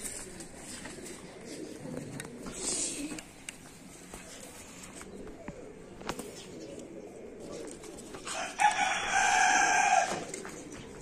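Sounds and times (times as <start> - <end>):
rooster crowing: 8.3 - 10.3.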